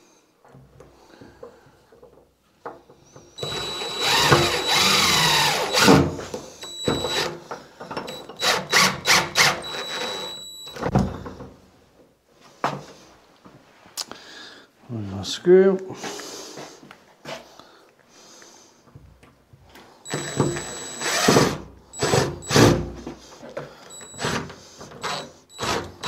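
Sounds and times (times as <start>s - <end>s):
impact driver whining: 3.4s - 7.4s, 8.0s - 11.0s, 20.1s - 23.0s, 23.9s - 26.0s.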